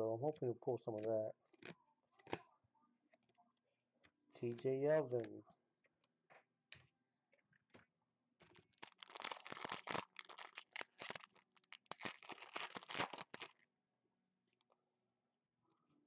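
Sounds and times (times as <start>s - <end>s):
foil wrapper crinkling and tearing: 8.4s - 13.6s.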